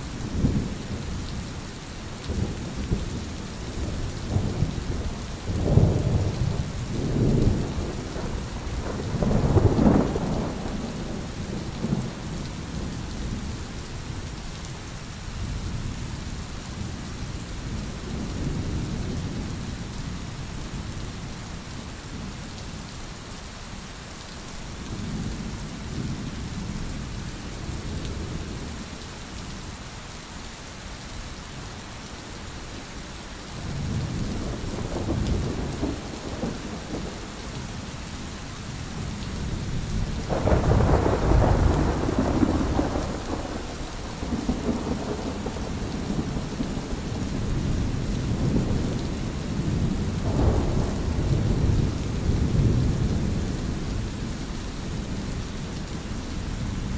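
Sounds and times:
rain hiss: 0.0 - 56.9
rolling thunder: 3.8 - 12.9, 33.6 - 37.3, 39.0 - 55.3.

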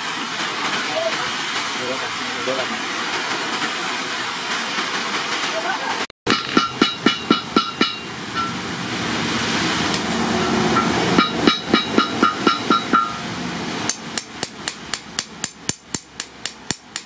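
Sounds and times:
hammer striking steel on anvil: 6.3 - 8.6, 10.7 - 13.3, 13.9 - 17.0.

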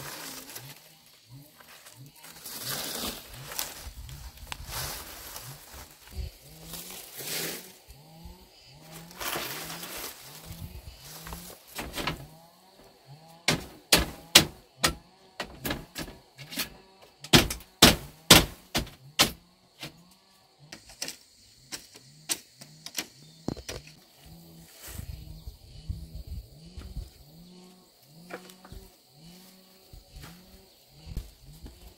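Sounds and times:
palm-leaf thatch rustling: 0.0 - 25.3, 26.6 - 31.9
bamboo poles knocking: 13.5 - 19.4.

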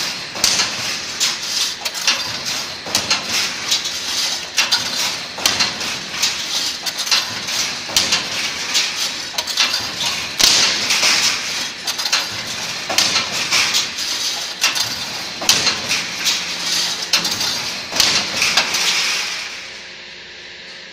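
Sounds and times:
mesh machine metallic knocks: 0.0 - 19.8.

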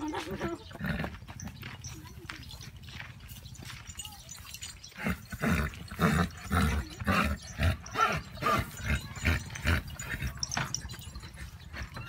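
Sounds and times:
horse grunting rhythmically: 0.0 - 1.6, 4.9 - 12.0.

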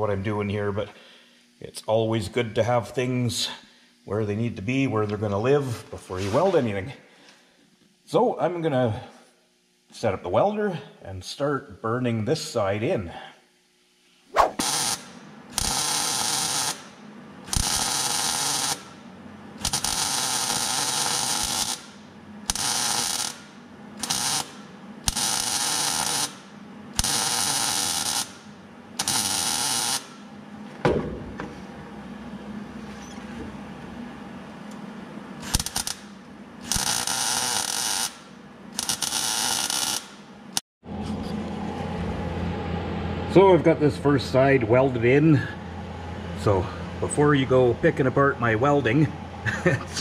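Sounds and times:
welder arc crackling: 14.4 - 19.0, 19.6 - 26.4, 27.0 - 30.2, 35.4 - 40.3.

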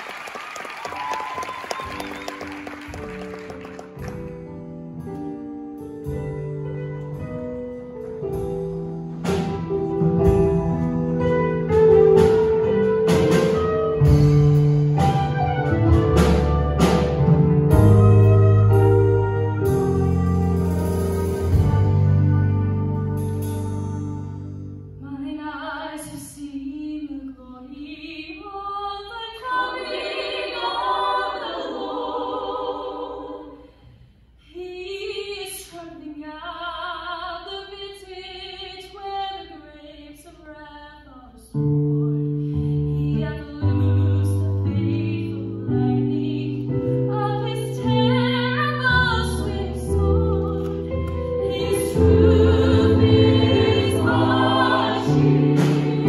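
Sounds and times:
woman singing: 25.0 - 30.9, 34.5 - 50.8.

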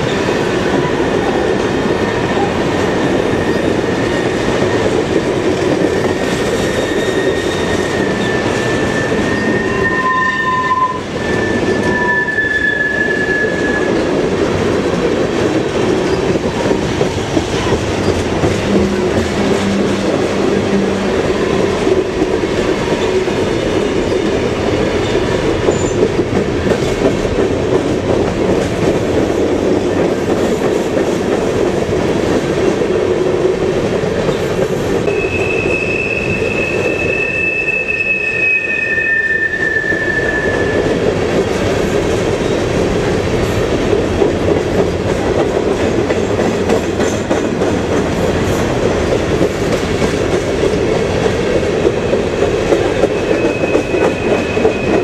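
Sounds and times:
train wheels rumbling on rail: 0.0 - 55.0
high wheel squeals: 6.6 - 13.9, 35.1 - 40.8.

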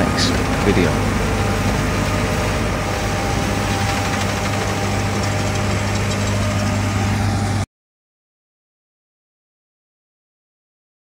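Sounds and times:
combine harvester engine drone: 0.0 - 7.7.

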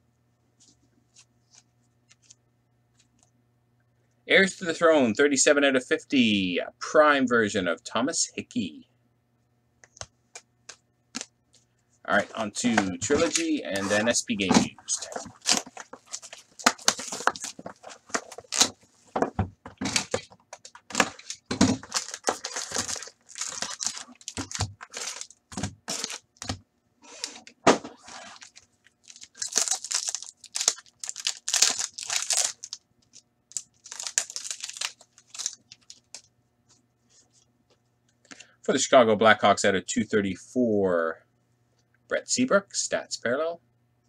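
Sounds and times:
card packs rustling: 12.1 - 36.3
shrink-wrap crinkling: 12.2 - 36.3.

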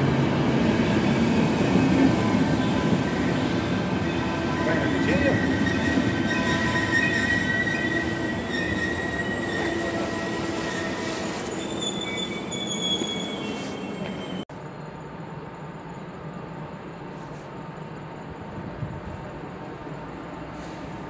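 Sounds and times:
train rumble: 0.0 - 21.0
train wheels squealing: 1.6 - 16.2.

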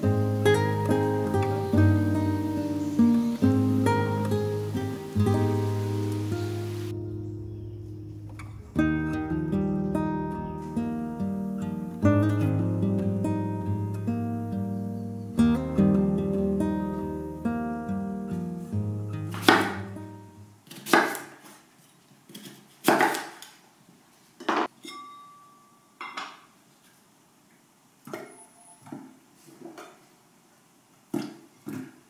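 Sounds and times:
acoustic guitar music: 0.0 - 20.6.

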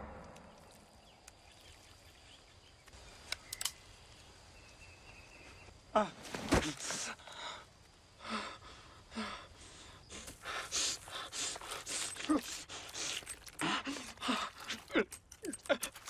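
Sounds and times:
person gasping for breath: 8.2 - 16.0.

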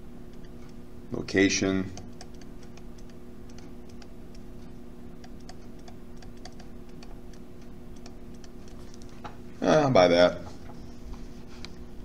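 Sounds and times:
steady low hum: 0.0 - 12.0
stylus tapping on pen tablet: 5.2 - 7.4.

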